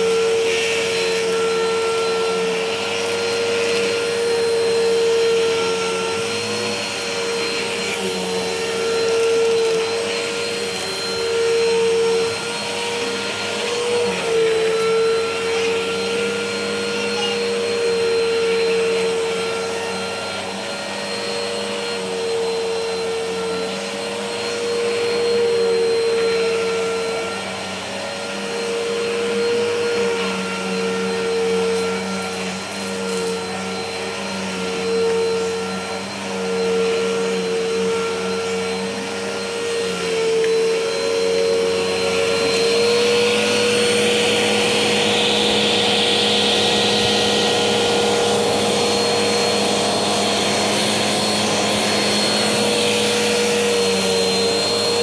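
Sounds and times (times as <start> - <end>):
vacuum cleaner running on carpet: 0.0 - 55.0.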